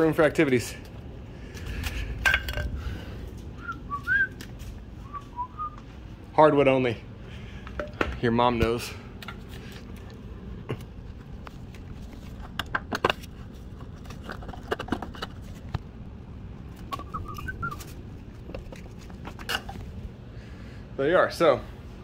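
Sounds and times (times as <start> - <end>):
steady low hum: 0.0 - 22.0
high chirps: 16.9 - 17.9.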